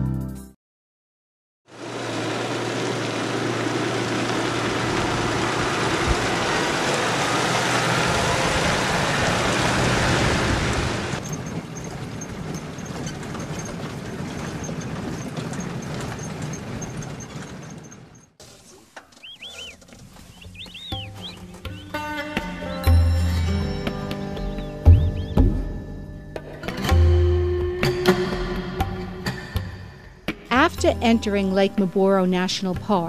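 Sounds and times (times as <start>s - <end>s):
cab interior drone: 1.7s - 27.0s
vehicle engine and road noise: 1.7s - 27.0s
small ticks and rattles: 11.2s - 18.3s.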